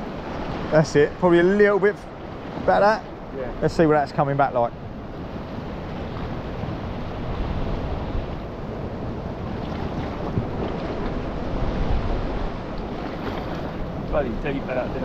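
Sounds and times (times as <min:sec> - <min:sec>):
wind buffeting microphone: 0:00.0 - 0:15.0
sea washing against rocks: 0:05.8 - 0:15.0.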